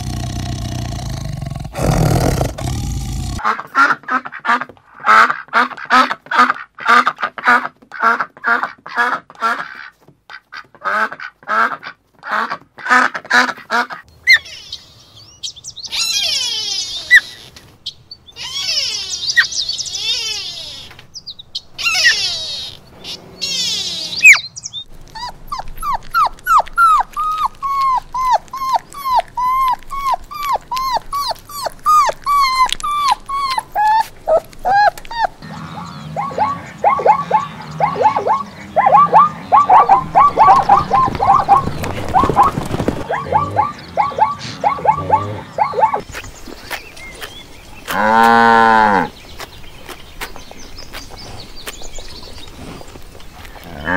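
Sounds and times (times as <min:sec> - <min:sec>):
animal quick repeated calls: 0:21.8 - 0:24.4, 0:34.7 - 0:46.0
puppies yipping: 0:21.8 - 0:47.3
puppies whimpering and whining: 0:23.4 - 0:24.5, 0:25.1 - 0:46.0
geese calling: 0:30.8 - 0:46.0.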